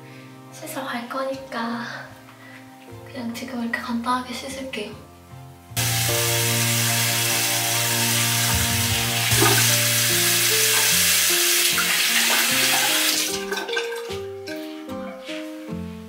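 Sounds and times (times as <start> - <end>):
tap water running into sink: 5.8 - 14.2.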